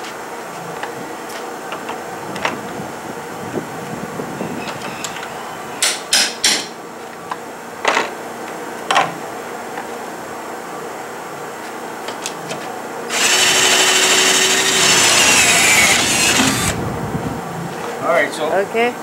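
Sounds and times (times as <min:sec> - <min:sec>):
pneumatic rivet gun bursts: 0:13.1 - 0:16.8.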